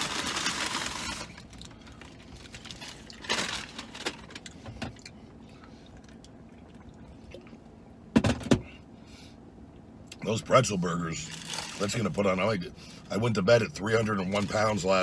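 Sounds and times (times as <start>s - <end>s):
wrapper paper crinkling: 0.0s - 1.7s, 2.4s - 4.4s.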